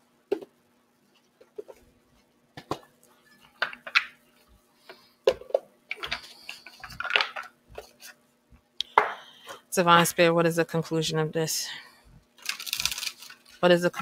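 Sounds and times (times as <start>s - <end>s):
cards rustling: 12.4s - 13.6s.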